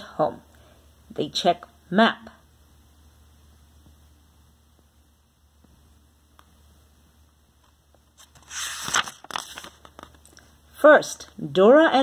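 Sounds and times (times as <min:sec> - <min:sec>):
faint room hum: 0:00.0 - 0:12.0
paper page turning: 0:08.1 - 0:10.5.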